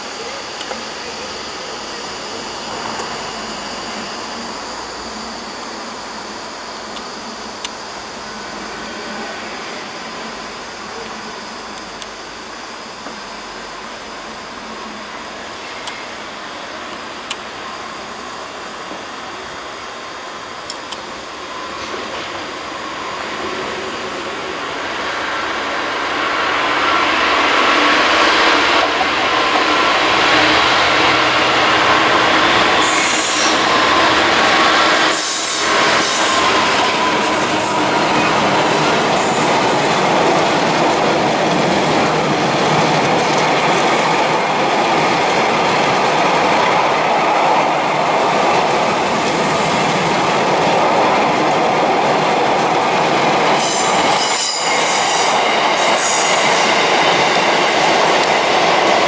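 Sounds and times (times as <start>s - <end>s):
diesel locomotive passing: 0.0s - 59.0s.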